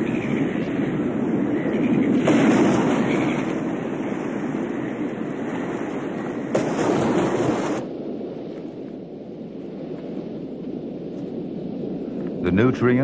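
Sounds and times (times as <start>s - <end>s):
heavy ocean waves breaking: 0.0s - 8.4s.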